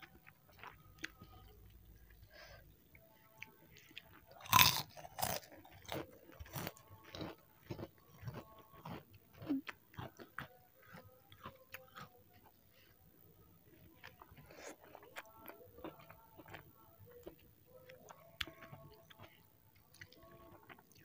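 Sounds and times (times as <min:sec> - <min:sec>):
chewing and mouth noises: 0:00.0 - 0:02.4, 0:03.0 - 0:12.9, 0:13.7 - 0:21.0
crunchy bites of fried noodles: 0:04.4 - 0:10.2.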